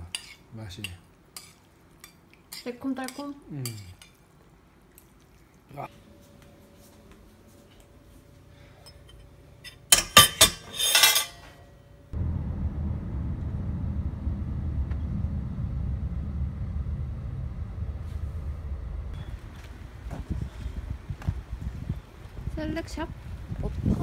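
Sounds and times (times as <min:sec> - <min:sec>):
car interior rumble: 0:12.2 - 0:19.5.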